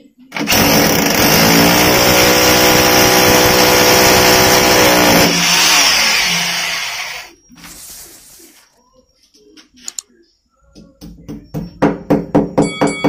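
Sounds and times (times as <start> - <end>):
hammer drill boring into concrete: 0.4 - 7.3.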